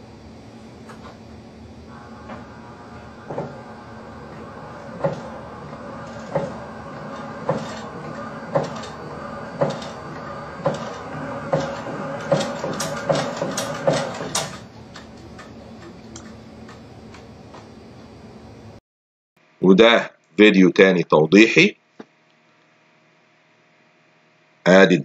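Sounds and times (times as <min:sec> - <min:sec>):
motor hum: 0:00.0 - 0:18.8
sharp knocks: 0:03.2 - 0:14.6.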